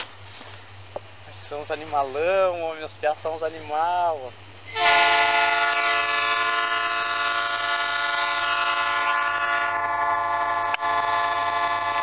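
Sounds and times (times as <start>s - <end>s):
locomotive horn blast: 4.7s - 12.0s.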